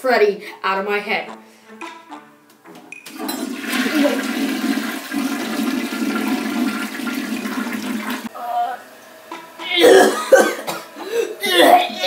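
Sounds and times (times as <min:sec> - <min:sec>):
toilet water rushing: 0:03.0 - 0:08.3.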